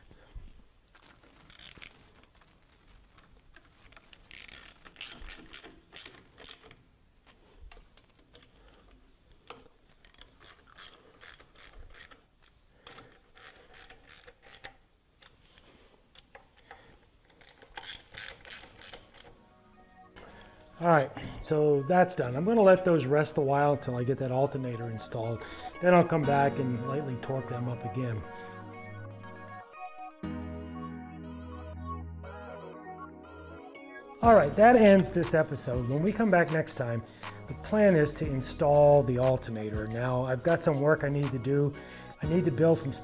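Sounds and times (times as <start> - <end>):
ratchet wrench clicking: 1.0 - 2.4, 3.9 - 6.8, 9.4 - 15.4, 16.2 - 19.3.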